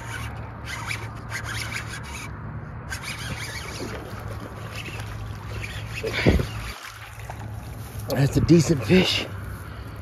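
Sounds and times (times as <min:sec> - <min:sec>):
fishing reel winding: 0:00.0 - 0:02.3, 0:02.9 - 0:04.0
fish splashing at the surface: 0:03.5 - 0:08.0.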